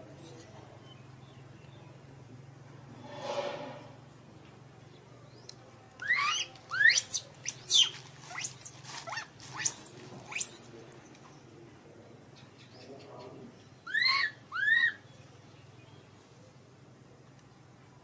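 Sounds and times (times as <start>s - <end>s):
baby monkey crying: 6.0s - 10.7s, 13.9s - 15.0s.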